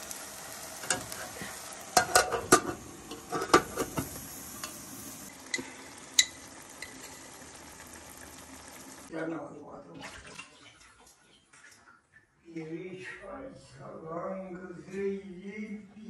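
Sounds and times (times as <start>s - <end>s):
faint hiss: 0.0s - 9.1s
pot lid clattering: 1.9s - 4.9s.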